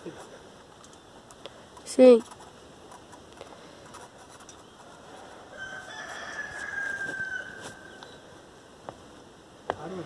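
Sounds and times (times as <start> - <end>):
rooster crowing: 5.3 - 8.0.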